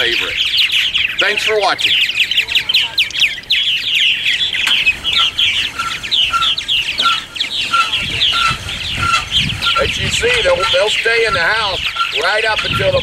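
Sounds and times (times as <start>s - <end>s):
birds chirping and chattering: 0.0s - 13.0s.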